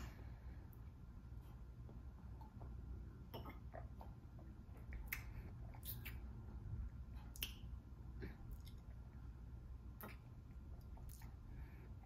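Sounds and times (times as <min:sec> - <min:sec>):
lip smacks and tongue clicks: 0:02.3 - 0:09.2, 0:09.9 - 0:11.5.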